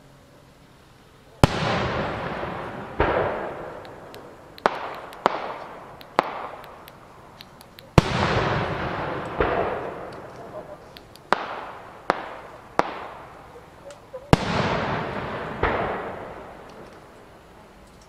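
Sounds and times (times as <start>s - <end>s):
firework shells booming: 1.4s - 13.6s, 14.3s - 17.2s
sharp firework cracks: 1.4s - 17.4s.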